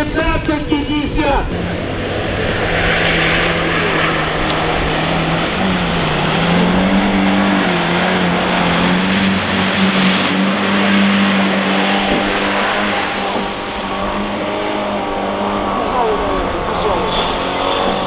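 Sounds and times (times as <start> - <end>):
suv engine revving hard: 1.4 - 18.0
splashing water and mud: 3.8 - 15.3.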